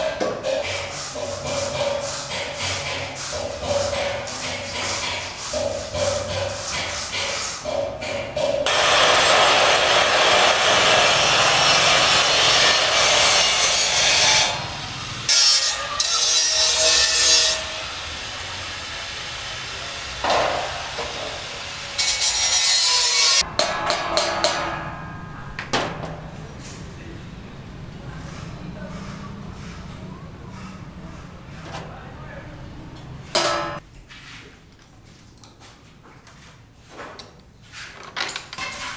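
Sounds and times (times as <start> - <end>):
angle grinder grinding steel: 8.7 - 25.5.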